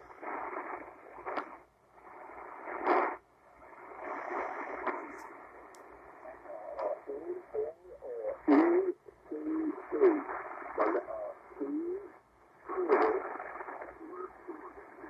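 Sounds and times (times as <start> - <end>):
radio static hiss: 0.0 - 15.0
static crackle: 0.0 - 15.0.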